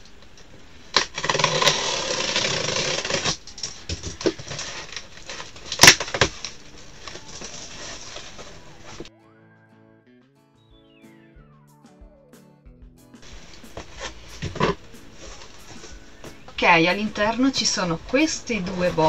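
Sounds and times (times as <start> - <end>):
cardboard flaps rustling: 0.7 - 9.1, 13.3 - 16.2
sharp cardboard crack: 0.8 - 9.1
box cutter slitting packing tape: 0.9 - 9.0.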